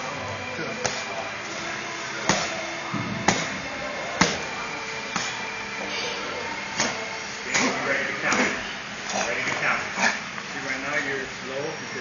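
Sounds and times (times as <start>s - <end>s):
boxing gloves hitting mitts: 2.2s - 5.4s, 6.7s - 8.6s.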